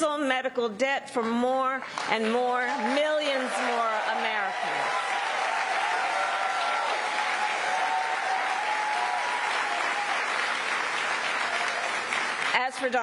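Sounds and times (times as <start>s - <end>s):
crowd applauding: 1.9s - 12.9s
voices cheering: 2.6s - 12.4s.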